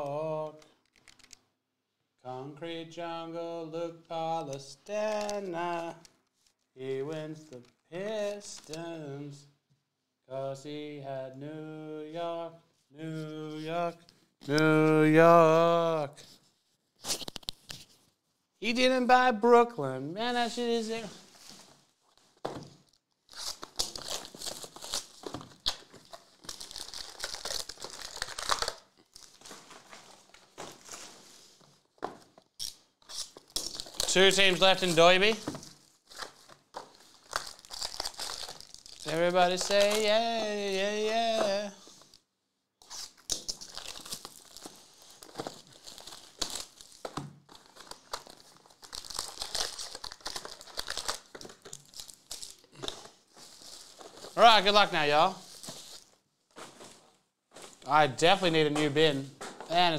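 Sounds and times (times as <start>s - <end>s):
plastic wrap crinkling and tearing: 20.4s - 42.2s, 42.8s - 57.0s.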